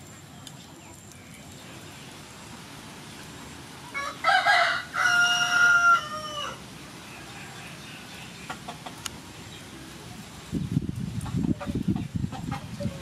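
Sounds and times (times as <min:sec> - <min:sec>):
rooster crowing: 0:03.9 - 0:06.6.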